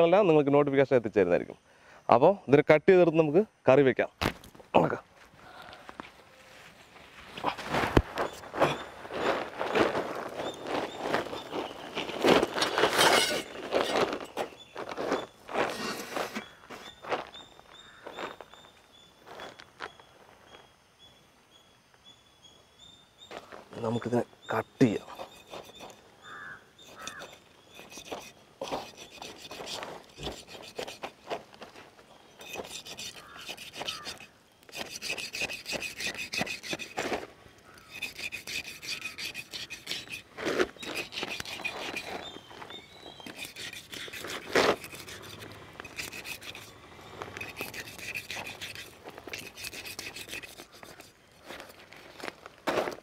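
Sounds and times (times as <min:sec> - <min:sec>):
blade sawing through fish skin: 0:25.2 - 0:31.2, 0:32.4 - 0:37.2, 0:37.8 - 0:42.2, 0:43.2 - 0:51.6.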